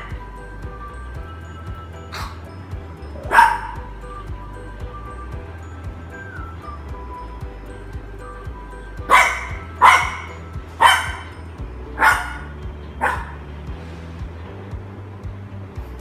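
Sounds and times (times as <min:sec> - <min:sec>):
background music: 0:00.0 - 0:16.0
puppy barking: 0:02.1 - 0:02.4, 0:03.2 - 0:03.9, 0:09.1 - 0:11.4, 0:12.0 - 0:13.4.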